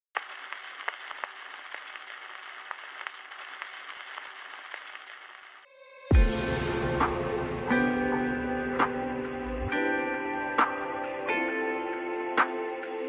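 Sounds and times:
film crackle hiss with pops: 0.0s - 13.0s
deep bass hit: 6.1s - 9.7s.

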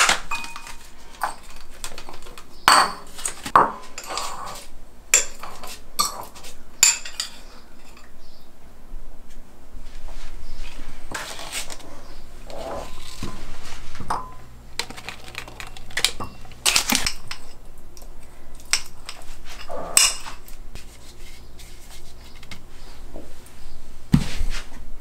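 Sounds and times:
fork and ceramic bowls clinking: 5.2s - 8.1s, 15.6s - 17.6s, 18.6s - 20.6s.

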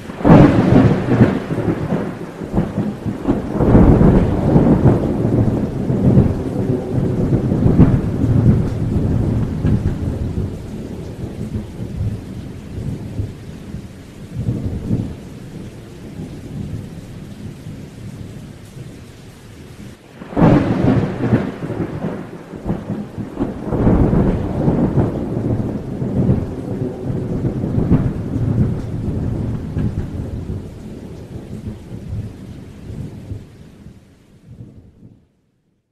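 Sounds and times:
loud thunderclap: 0.0s - 15.2s, 20.2s - 33.4s
rolling thunder: 0.0s - 18.4s, 19.8s - 33.5s
steady rain: 0.0s - 35.9s.

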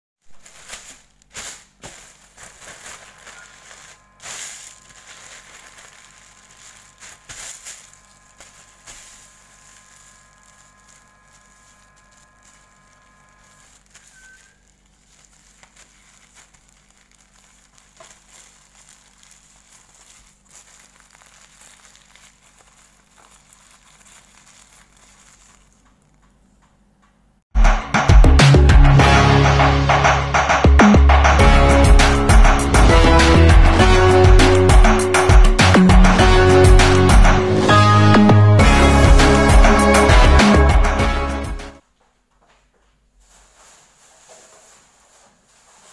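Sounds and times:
plastic bag crinkling: 0.2s - 26.7s, 42.8s - 45.9s
loud music: 27.6s - 41.8s.

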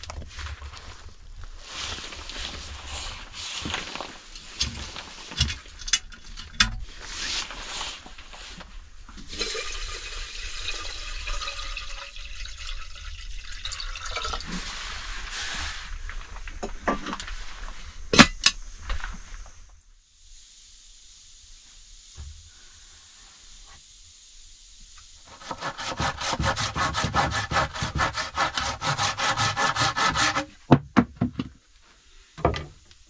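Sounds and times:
water pouring into kettle: 9.2s - 14.9s.

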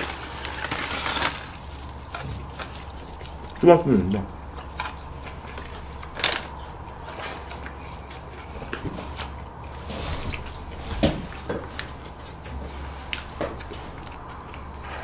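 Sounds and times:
plastic bag crinkling: 0.0s - 7.5s
chewing: 0.0s - 15.0s
low steady hum: 0.0s - 15.0s.

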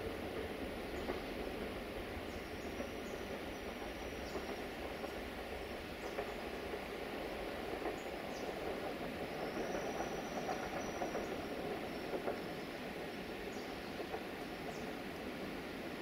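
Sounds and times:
train rolling rumble: 0.0s - 16.0s
faint clicks: 6.0s - 6.9s, 7.7s - 15.3s.

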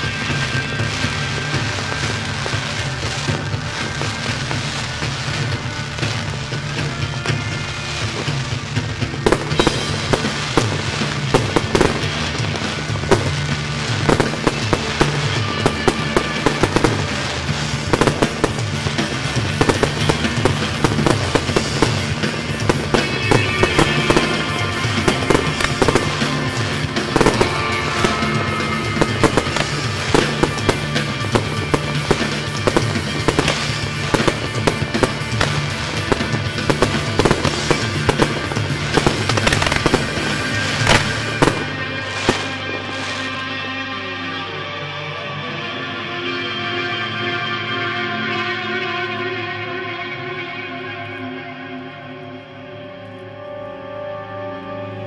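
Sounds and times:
fireworks bangs: 0.0s - 44.0s
music playing: 0.0s - 55.0s.

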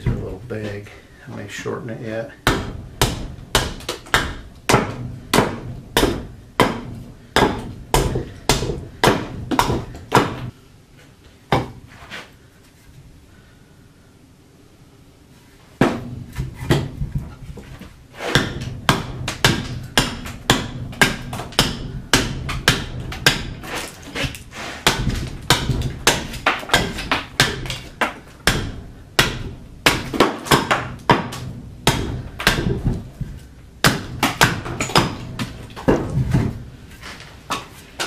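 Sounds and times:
axe chopping wood: 2.4s - 10.5s, 11.5s - 11.8s, 15.8s - 17.3s, 18.2s - 36.6s.

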